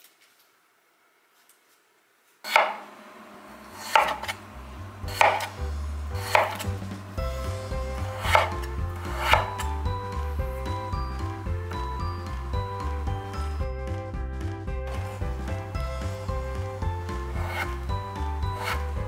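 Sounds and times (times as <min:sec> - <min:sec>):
knife chopping on cutting board: 0:02.5 - 0:02.9, 0:03.7 - 0:04.4, 0:05.0 - 0:05.6, 0:06.2 - 0:09.8, 0:16.6 - 0:19.0
background music with bass: 0:04.4 - 0:19.0.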